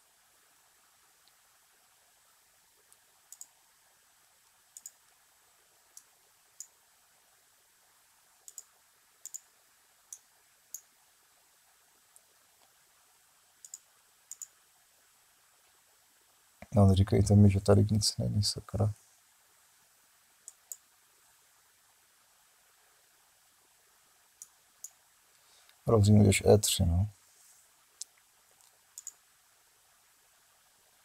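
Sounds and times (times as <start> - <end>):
computer mouse clicking: 2.8 - 3.6, 4.4 - 5.2, 5.9 - 6.8, 8.4 - 9.5, 10.1 - 10.9, 13.6 - 14.6, 20.4 - 20.9, 24.4 - 25.0, 28.0 - 29.2.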